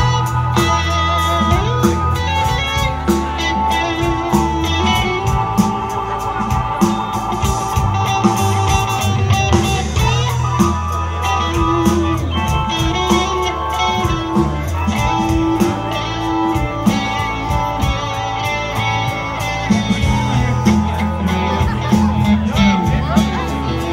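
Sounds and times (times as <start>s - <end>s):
live rock band playing: 0.0s - 23.9s.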